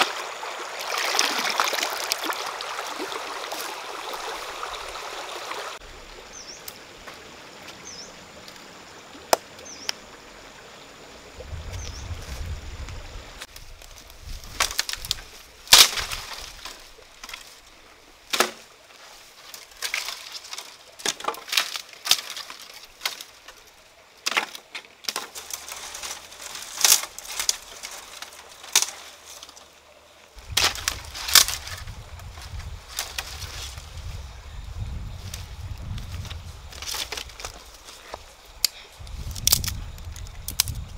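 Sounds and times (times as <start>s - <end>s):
twigs and leaves rustling: 0.0s - 8.7s, 11.4s - 40.9s
dry branches snapping: 13.4s - 17.6s, 18.3s - 18.7s, 19.4s - 29.6s, 30.4s - 34.0s, 35.2s - 40.9s.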